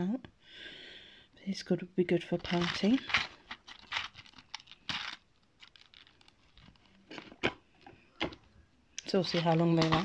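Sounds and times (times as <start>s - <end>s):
packaging rustling and scraping: 2.4s - 8.4s, 9.0s - 10.0s.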